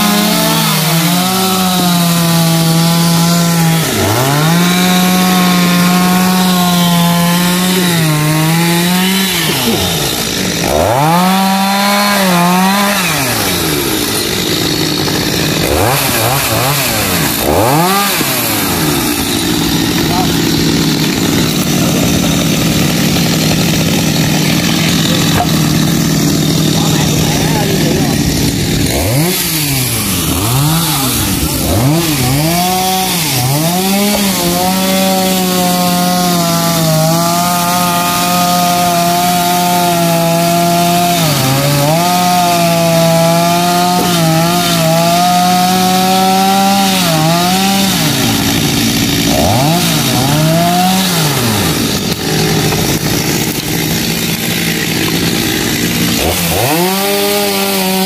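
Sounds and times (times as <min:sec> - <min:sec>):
chainsaw revving and cutting wood: 0:00.0 - 0:58.0.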